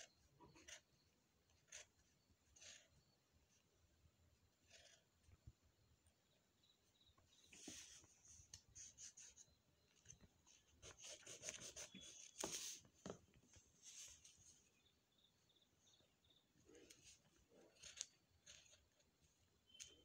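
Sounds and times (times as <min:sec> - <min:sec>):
pencil scratching on paper: 0:00.0 - 0:03.6, 0:04.6 - 0:05.2, 0:07.5 - 0:09.6, 0:10.4 - 0:12.9.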